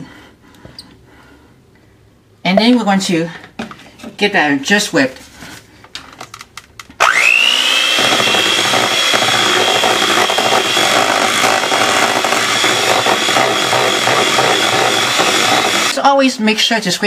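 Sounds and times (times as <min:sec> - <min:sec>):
electric hand mixer whirring: 0:07.0 - 0:16.0.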